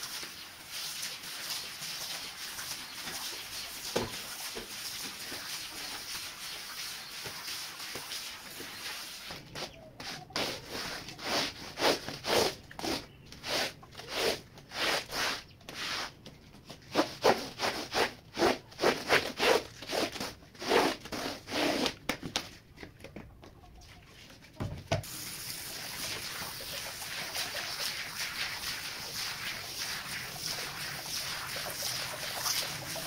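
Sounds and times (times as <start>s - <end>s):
squeegee scraping wet rug: 0.0s - 22.0s, 25.5s - 33.0s.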